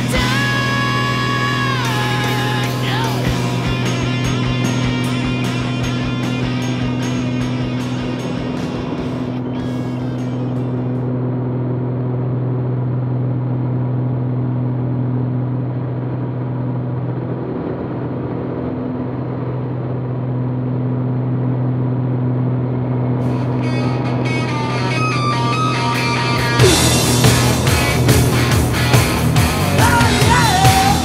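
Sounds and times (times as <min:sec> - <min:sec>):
rock music with guitar: 0:00.0 - 0:11.3, 0:23.2 - 0:31.0
propeller plane engine droning: 0:00.0 - 0:31.0.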